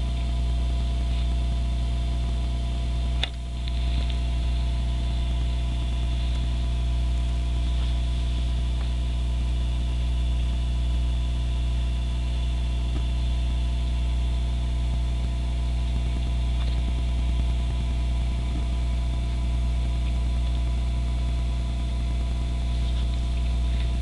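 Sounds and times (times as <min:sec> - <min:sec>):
constant hiss: 0:00.0 - 0:24.0
faint whining tones: 0:00.0 - 0:24.0
low electrical hum: 0:00.0 - 0:24.0.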